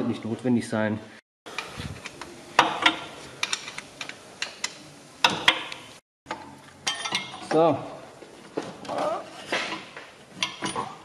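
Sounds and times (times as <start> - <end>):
hand tools clinking on metal: 6.8 - 7.6.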